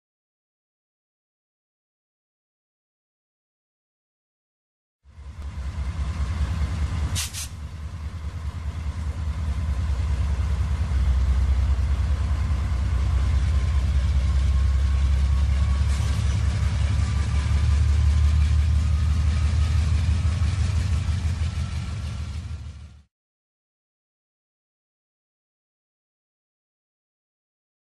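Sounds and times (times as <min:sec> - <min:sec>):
model train rumbling: 0:05.1 - 0:23.1.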